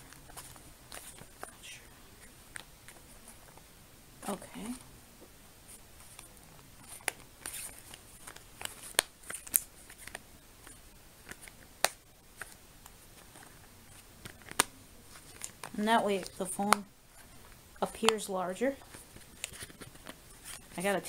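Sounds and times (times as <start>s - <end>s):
handling rustles: 0.0s - 3.6s.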